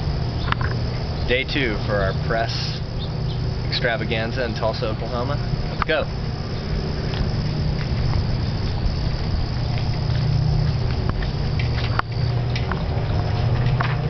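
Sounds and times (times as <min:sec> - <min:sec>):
low rumble: 0:00.0 - 0:14.0
footsteps: 0:06.6 - 0:14.0.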